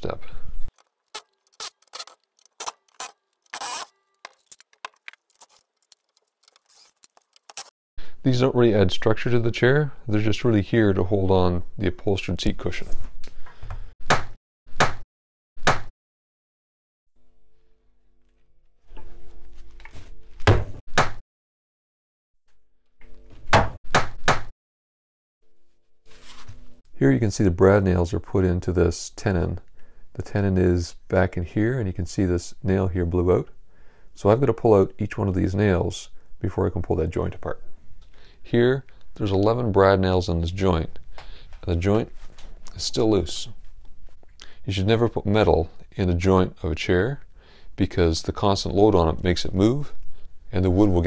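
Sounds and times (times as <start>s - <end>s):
small clicks and scrapes: 0.7s - 7.7s
cordless screwdriver rasping: 1.1s - 7.7s.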